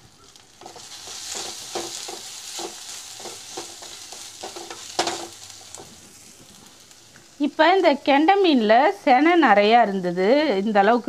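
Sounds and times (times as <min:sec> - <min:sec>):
masala sizzling in oil: 0:00.0 - 0:11.0
spatula knocking and scraping pan: 0:00.6 - 0:06.0.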